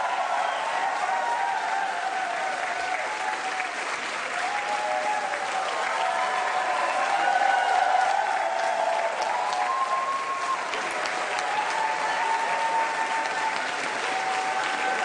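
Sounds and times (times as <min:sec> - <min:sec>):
crowd applauding: 0:00.0 - 0:15.0.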